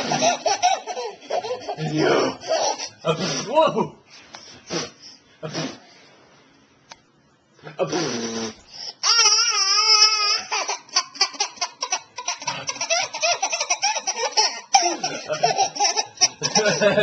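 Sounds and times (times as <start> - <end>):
baby laughing: 0.0 - 3.1, 9.0 - 17.0.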